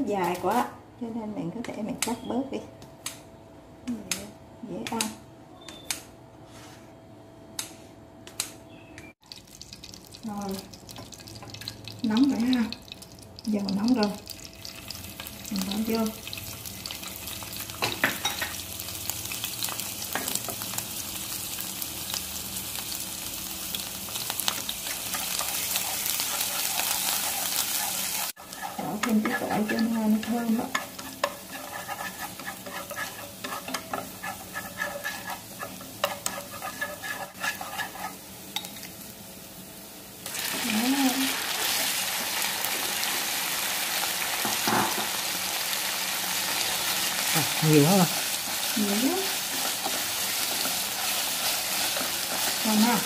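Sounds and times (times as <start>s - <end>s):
shallots sizzling in hot oil: 9.2s - 53.0s
wooden spatula scraping pan: 25.8s - 38.2s.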